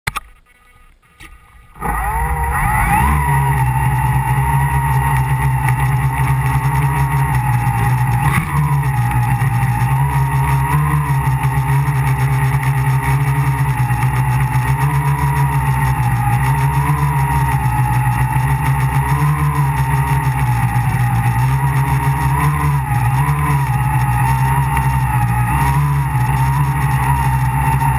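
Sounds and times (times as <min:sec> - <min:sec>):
electric motors and propellers buzzing: 0:00.2 - 0:27.9.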